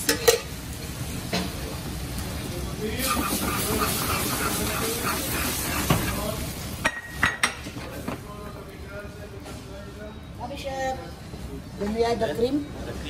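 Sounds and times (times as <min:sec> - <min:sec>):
food sizzling in a frying pan: 0:00.0 - 0:09.7.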